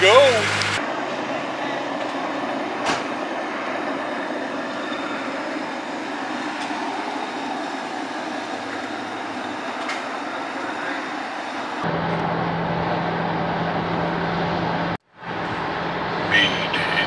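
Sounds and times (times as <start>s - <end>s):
gas pump rushing: 0.0s - 12.3s.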